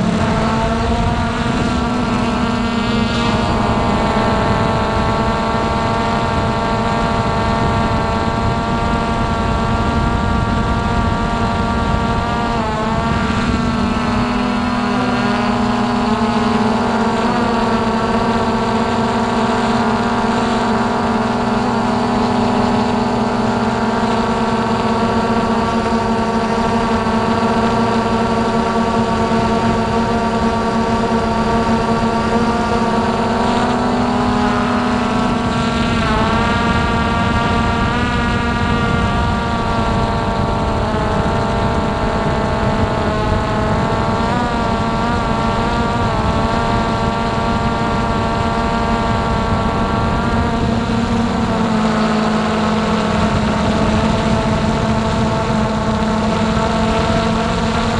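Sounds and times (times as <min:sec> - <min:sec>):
low rush: 0:00.0 - 0:06.6
quadcopter motors whining: 0:00.0 - 0:57.9.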